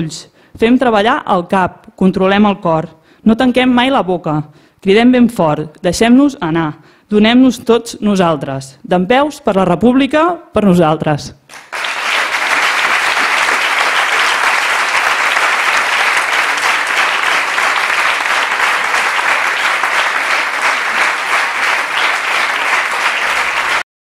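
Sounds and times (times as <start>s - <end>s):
audience applauding: 11.5s - 23.9s.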